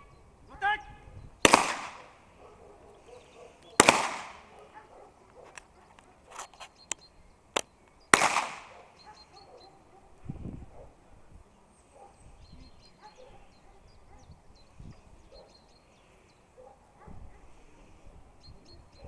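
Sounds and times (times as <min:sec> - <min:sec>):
blank pistol shots: 0:01.4 - 0:02.2, 0:03.8 - 0:04.5, 0:08.1 - 0:08.8
faint sharp cracks: 0:03.6 - 0:04.6, 0:05.4 - 0:08.8.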